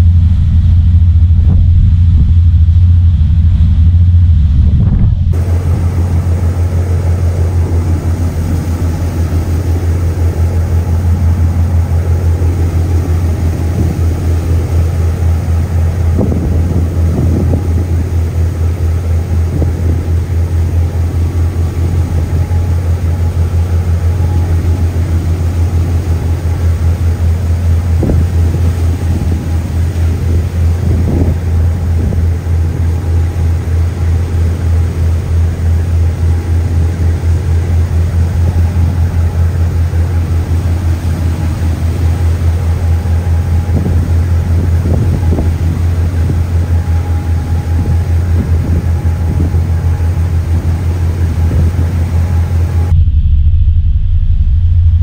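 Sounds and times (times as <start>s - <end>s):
wind buffeting microphone: 0.0s - 34.6s, 38.1s - 55.0s
ferry engine drone: 0.0s - 55.0s
wake rushing: 1.3s - 34.5s.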